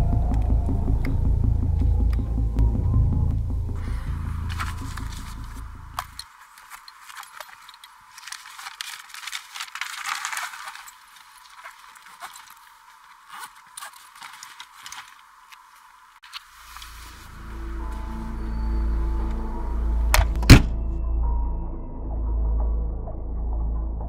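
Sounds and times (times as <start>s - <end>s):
low rumbling drone: 0.0s - 6.2s, 16.8s - 24.0s
thin rustling noise: 4.4s - 18.3s.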